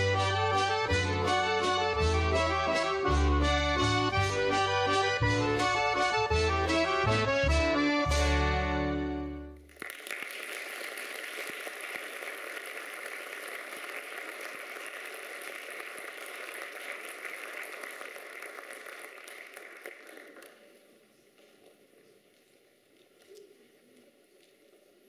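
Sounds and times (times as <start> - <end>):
audience applauding: 9.6 - 20.8.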